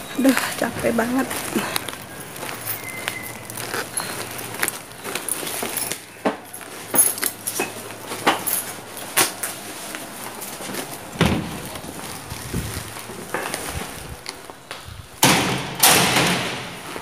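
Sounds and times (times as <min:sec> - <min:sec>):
keys jingling: 0:01.0 - 0:09.4
entrance door clicks and knocks: 0:15.2 - 0:16.8.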